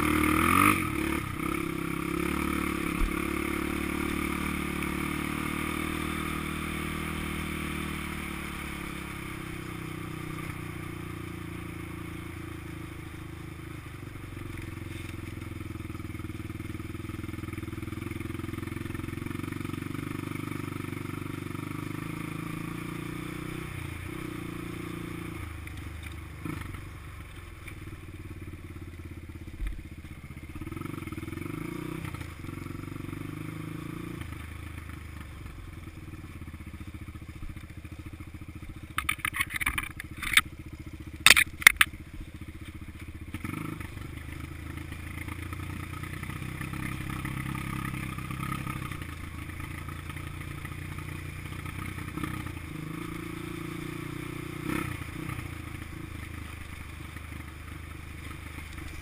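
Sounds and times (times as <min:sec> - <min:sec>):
dirt bike engine revving: 0:00.0 - 0:13.0, 0:30.6 - 0:34.4, 0:43.3 - 0:56.9
sharp knocks and clicks: 0:38.9 - 0:40.4, 0:41.2 - 0:41.9.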